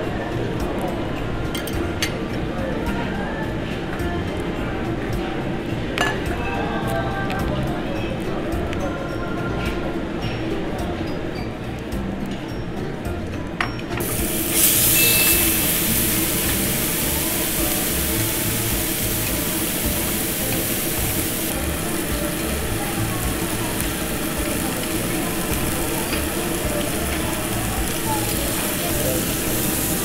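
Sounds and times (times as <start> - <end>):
meat sizzling on a grill plate: 14.0 - 30.0.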